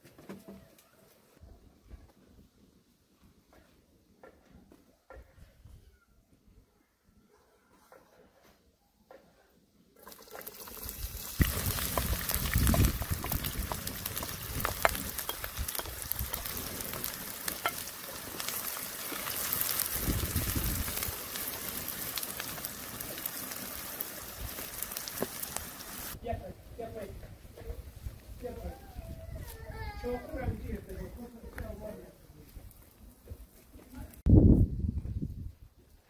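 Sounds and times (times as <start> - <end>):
onions sizzling in a pan: 10.0 - 26.2.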